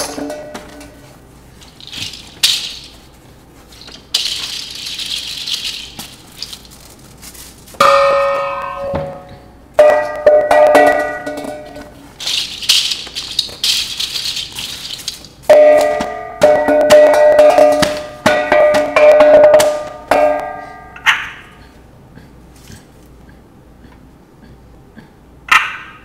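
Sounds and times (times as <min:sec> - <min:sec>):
paper rustling and crumpling: 0:01.5 - 0:07.8, 0:12.1 - 0:15.5
small objects shaken like a rattle: 0:01.5 - 0:08.0, 0:11.2 - 0:15.6
struck metal gongs ringing: 0:07.8 - 0:12.0, 0:15.5 - 0:21.6.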